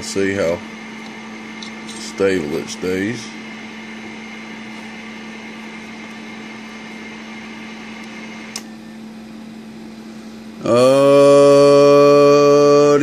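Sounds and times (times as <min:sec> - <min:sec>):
electrical hum with hiss: 0:00.0 - 0:13.0
person holding a loud tone: 0:10.6 - 0:12.7.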